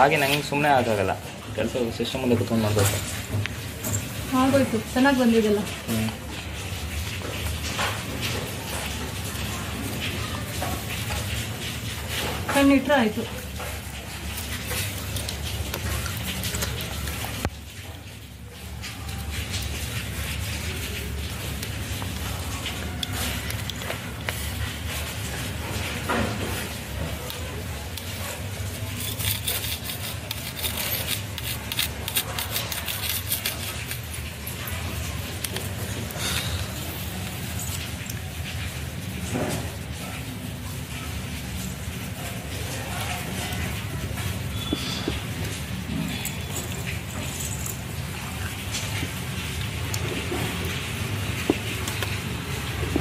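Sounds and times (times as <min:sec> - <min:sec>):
tool scraping clay: 0:28.0 - 0:37.1.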